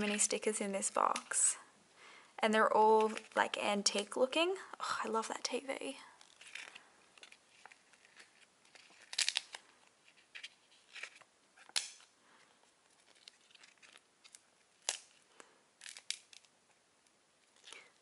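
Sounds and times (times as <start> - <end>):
paper pages rustling: 0.0 - 1.4, 6.2 - 16.5.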